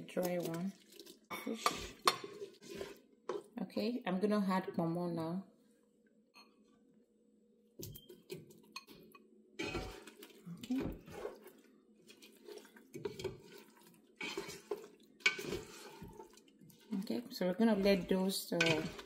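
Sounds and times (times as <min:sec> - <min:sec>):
spatula stirring and scraping: 0:00.0 - 0:03.6, 0:09.6 - 0:19.0.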